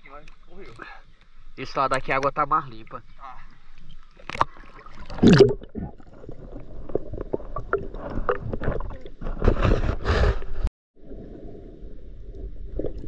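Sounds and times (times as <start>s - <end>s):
muffled underwater clicks: 0.1s - 2.4s
water splashing and gurgling: 3.1s - 13.0s
water rushing against camera: 3.8s - 10.7s.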